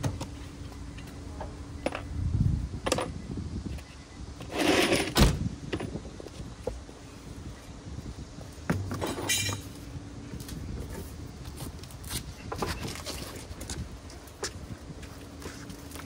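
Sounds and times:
metal tools clinking: 0:09.0 - 0:09.7.

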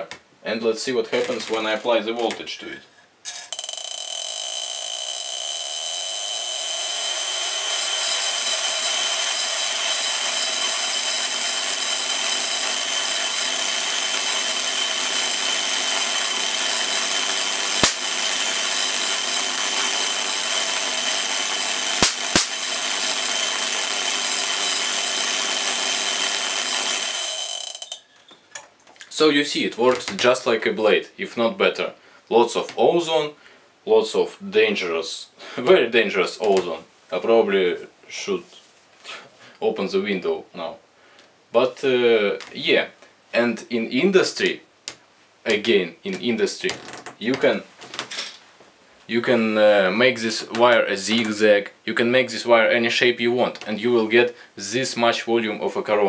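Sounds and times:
sharp clicks: 0:22.0 - 0:22.6.

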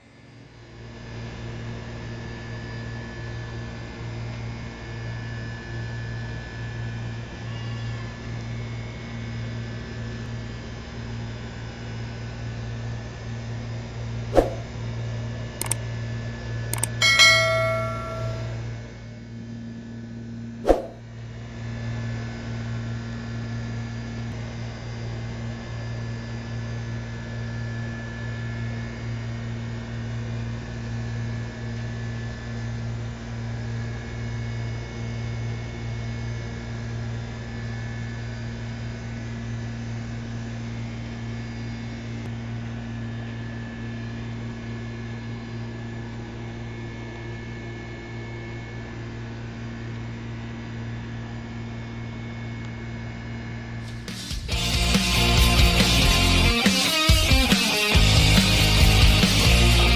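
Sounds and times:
sharp clicks: 0:16.8 - 0:17.0
ringing metallic clang: 0:16.8 - 0:18.7.

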